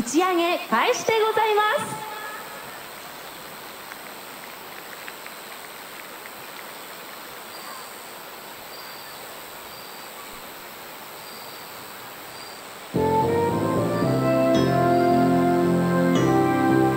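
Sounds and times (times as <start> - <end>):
steady hiss: 0.0 - 16.9
faint ticks: 3.8 - 6.8.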